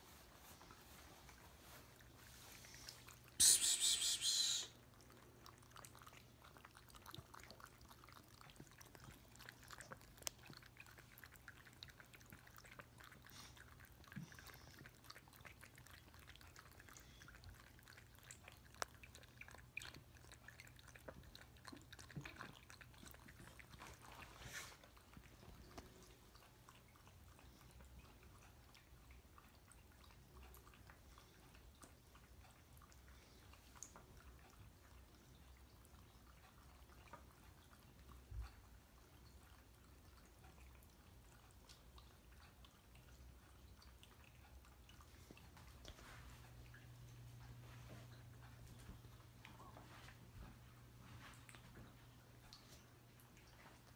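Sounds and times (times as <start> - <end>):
low steady hum: 0.0 - 53.9
cat lapping water: 0.1 - 53.9.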